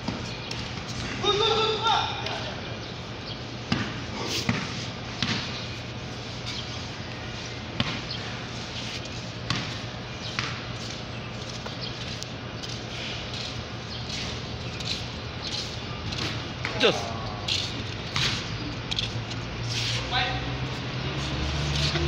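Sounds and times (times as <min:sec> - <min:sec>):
basketball bouncing on concrete: 0:03.7 - 0:05.7, 0:07.8 - 0:08.4, 0:09.4 - 0:10.7, 0:18.1 - 0:18.5.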